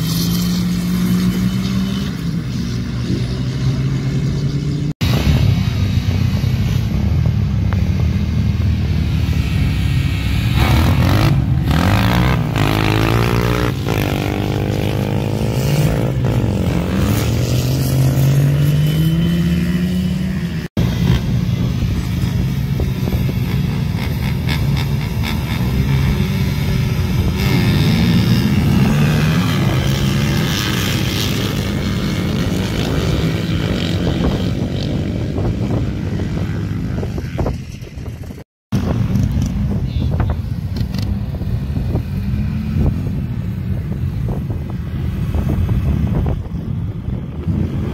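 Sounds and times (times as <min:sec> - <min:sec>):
racing engines revving: 0:00.0 - 0:37.5.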